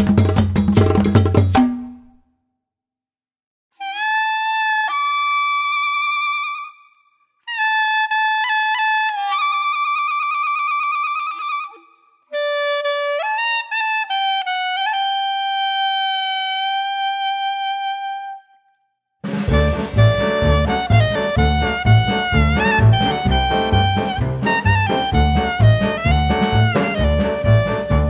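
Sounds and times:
wind instrument slow melody: 0:07.5 - 0:18.7, 0:19.5 - 0:28.0.

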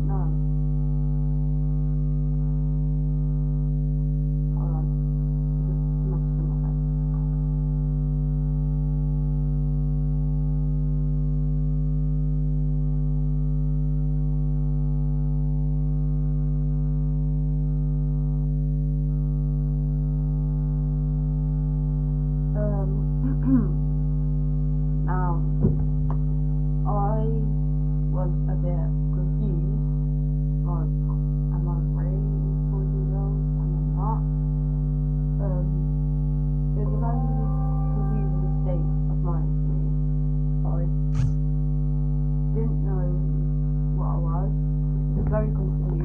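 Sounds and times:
faint vocal sounds: 0:36.8 - 0:40.0.

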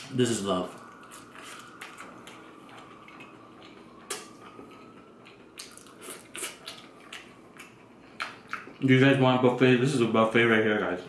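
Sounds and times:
chewing crisp fried food: 0:00.7 - 0:08.9.

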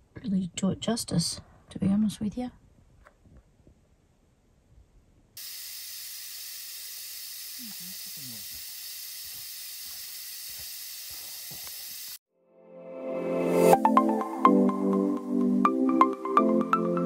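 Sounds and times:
air hissing out of tyre: 0:05.4 - 0:12.2.

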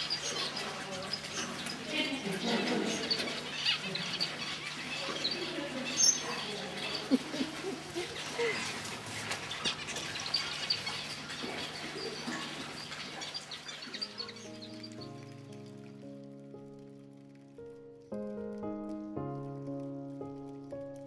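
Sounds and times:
finches chirping: 0:00.0 - 0:16.0
soft music: 0:09.6 - 0:21.0.

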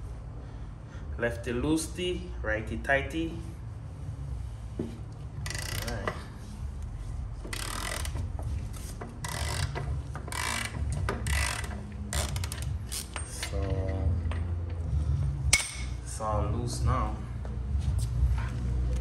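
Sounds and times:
ratchet wrench clicking: 0:05.5 - 0:06.1, 0:07.5 - 0:08.2, 0:09.2 - 0:13.6.

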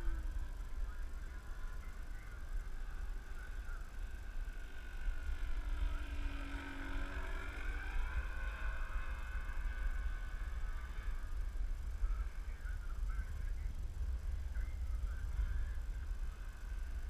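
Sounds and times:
model plane motor buzzing: 0:00.0 - 0:13.0.

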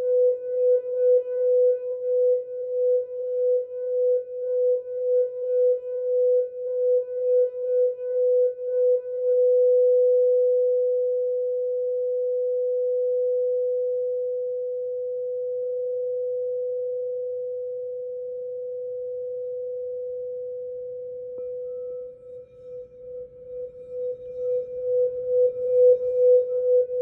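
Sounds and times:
singing bowl ringing tone: 0:21.0 - 0:27.0.

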